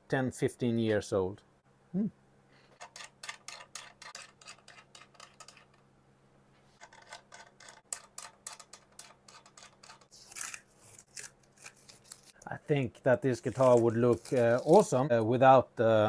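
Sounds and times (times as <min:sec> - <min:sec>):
tape rasp: 0:02.7 - 0:05.8, 0:06.7 - 0:12.5, 0:13.5 - 0:15.0.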